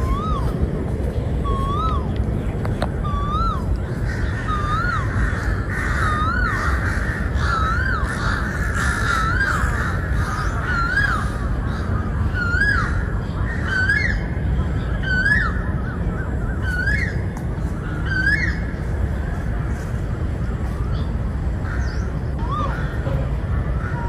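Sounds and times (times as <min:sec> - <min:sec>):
steady low rumble: 0:00.0 - 0:24.0
crows calling: 0:03.1 - 0:14.3, 0:20.4 - 0:24.0.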